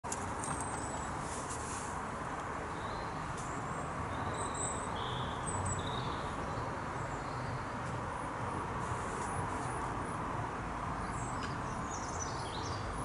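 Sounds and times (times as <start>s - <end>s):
small birds chirping: 2.6s - 8.3s, 10.9s - 13.0s.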